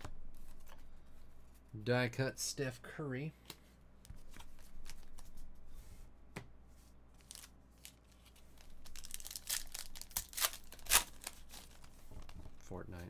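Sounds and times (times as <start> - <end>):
foil wrapper crinkling and tearing: 7.2 - 11.9.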